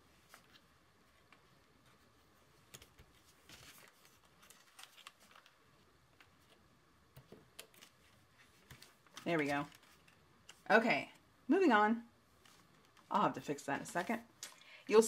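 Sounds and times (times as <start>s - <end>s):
paper rustling: 0.1s - 10.7s, 12.4s - 14.3s.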